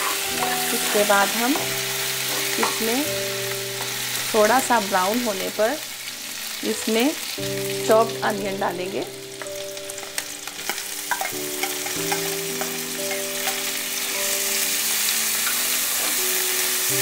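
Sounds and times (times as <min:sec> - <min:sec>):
steel spoon scraping a pan: 0:00.0 - 0:01.3, 0:10.0 - 0:14.0
onions sizzling in hot oil: 0:00.0 - 0:17.0.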